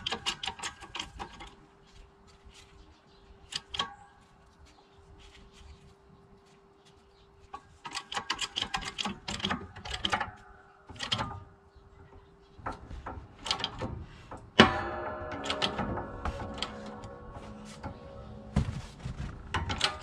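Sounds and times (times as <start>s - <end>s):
metallic clicks and rattles: 0.0s - 1.6s, 3.5s - 4.1s, 7.5s - 18.1s, 19.5s - 20.0s
loud ringing metal clang: 14.5s - 20.0s.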